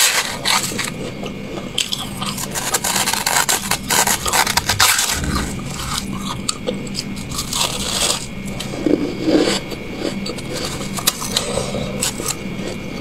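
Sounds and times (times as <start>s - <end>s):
frost crunching as chewed: 0.0s - 12.8s.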